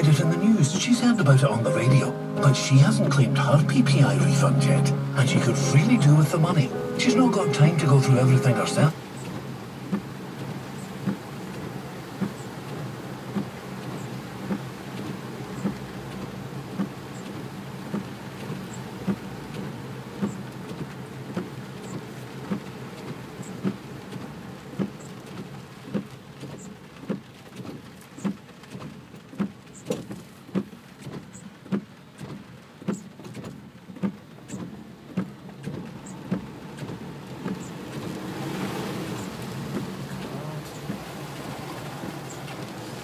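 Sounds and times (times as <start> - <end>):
car engine humming: 0.0 - 43.0
heavy rain drumming on car: 0.0 - 43.0
windscreen wipers thumping: 8.9 - 43.0.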